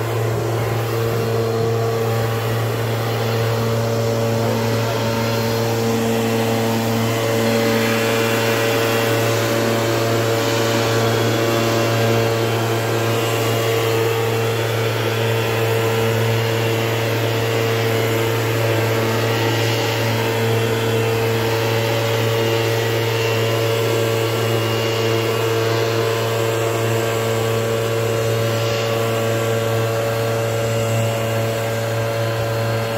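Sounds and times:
small engine droning: 0:00.0 - 0:32.9.

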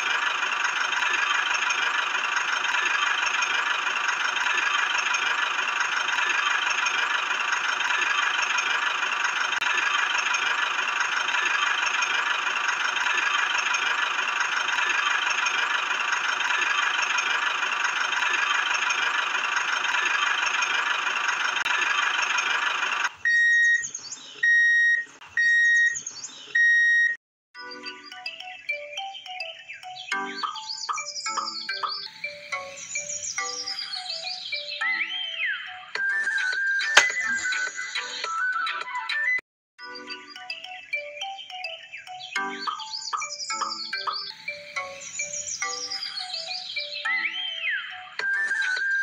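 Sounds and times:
toy electric motor whining: 0:00.0 - 0:24.0, 0:32.0 - 0:34.6, 0:36.2 - 0:38.0, 0:43.5 - 0:47.0.

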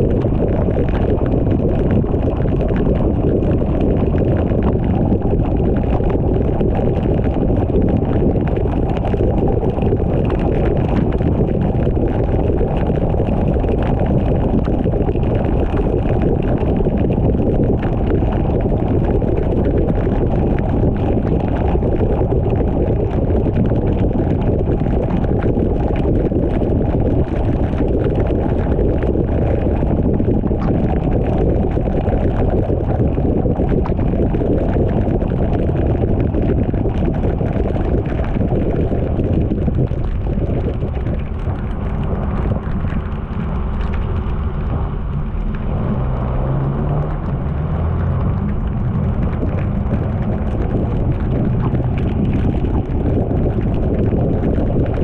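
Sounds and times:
car driving on wet road: 0:42.9 - 0:50.7.

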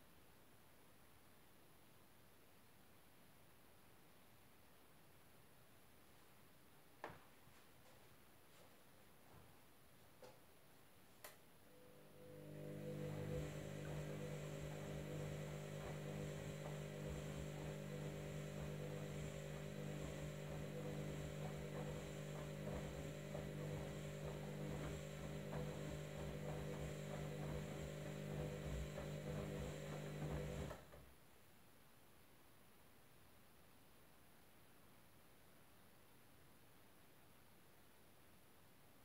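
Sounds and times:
washing machine motor humming: 0:11.7 - 0:31.1.

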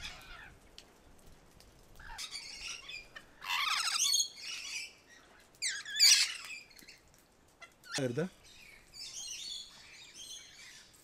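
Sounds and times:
parrots screeching: 0:00.0 - 0:00.5, 0:02.0 - 0:05.0, 0:05.6 - 0:06.7.

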